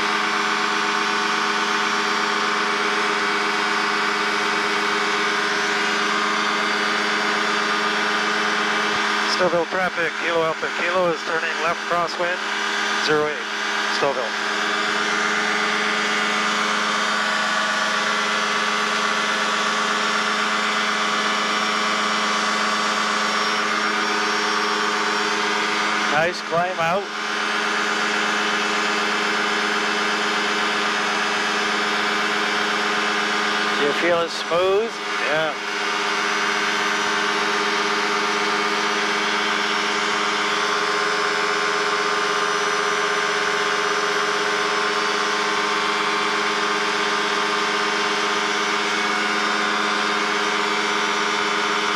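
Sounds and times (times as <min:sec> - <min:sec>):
two-stroke aircraft engine drone: 0:00.0 - 0:51.9.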